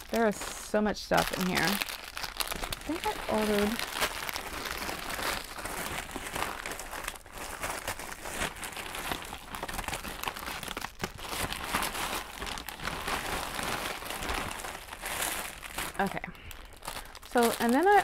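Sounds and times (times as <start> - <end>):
packaging crinkling and rustling: 0.0 - 18.0.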